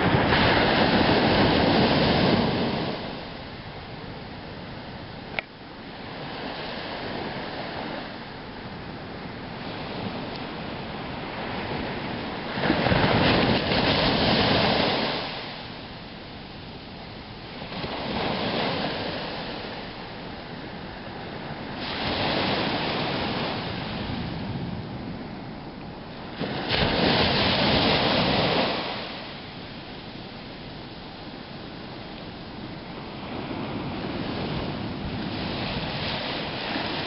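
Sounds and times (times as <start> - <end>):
waves breaking on sandy beach: 0.0 - 37.0.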